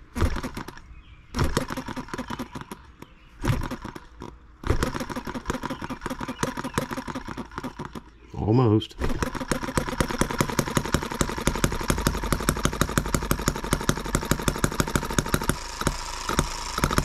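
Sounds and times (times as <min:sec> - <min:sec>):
model engine clattering: 0:09.2 - 0:17.0.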